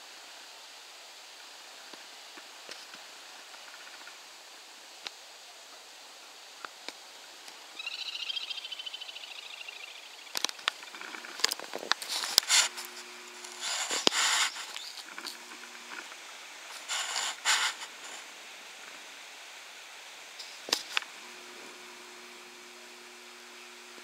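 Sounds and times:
bird fast pulsing trill: 7.8s - 10.3s
rustling bursts: 10.5s - 18.3s.

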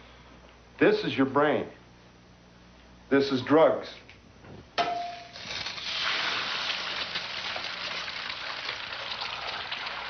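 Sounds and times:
egg cracking: 5.3s - 10.0s
egg sizzling in butter: 5.3s - 10.0s.

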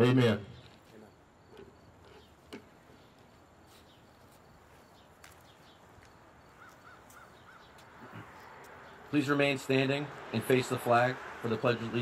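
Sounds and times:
faint bird chirps: 2.1s - 8.2s.

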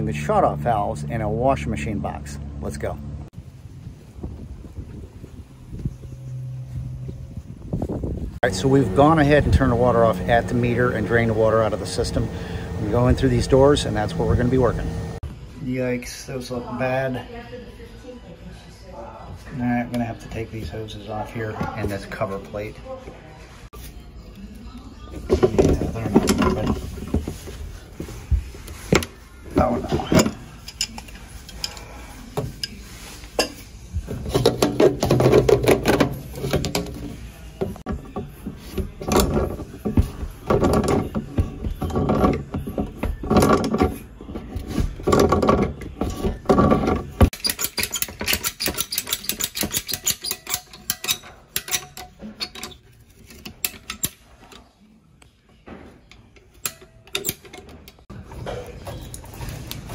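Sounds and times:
pliers scraping and clanking on metal: 28.9s - 54.8s, 55.6s - 59.9s.

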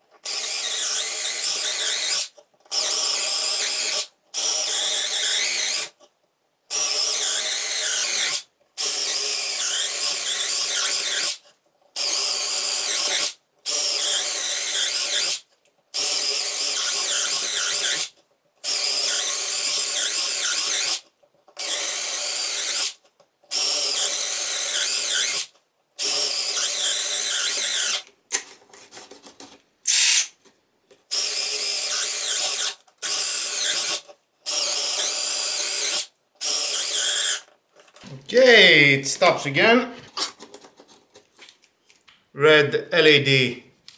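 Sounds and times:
cordless drill drilling into wood: 0.2s - 5.9s, 6.7s - 11.4s, 12.0s - 15.4s, 16.0s - 18.1s, 18.7s - 21.0s, 21.6s - 28.0s, 31.1s - 37.5s.

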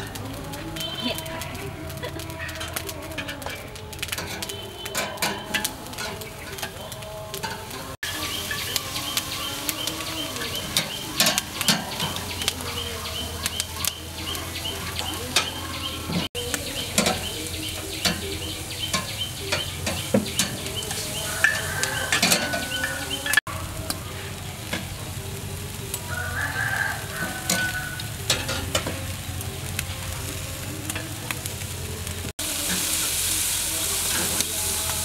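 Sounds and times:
meat sizzling on a grill: 0.0s - 35.0s
metal tongs scraping a grate: 2.0s - 23.4s, 26.6s - 29.8s.

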